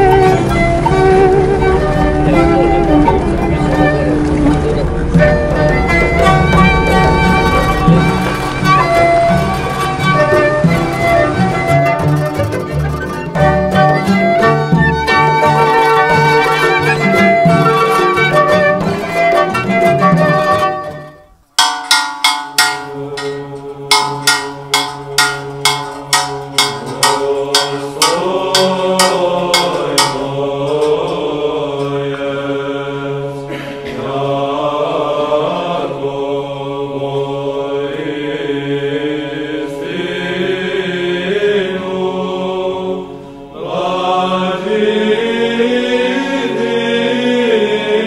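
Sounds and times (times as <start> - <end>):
bell ringing: 21.6 - 31.3
church chant over drone: 23.0 - 48.0.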